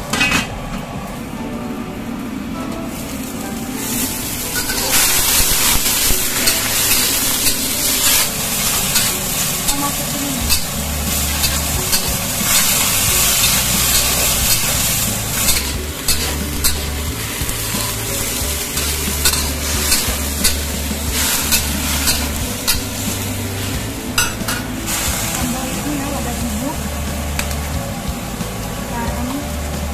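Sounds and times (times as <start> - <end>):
vegetables sizzling in oil: 2.9 - 29.9
metal spatula scraping wok: 3.9 - 25.9.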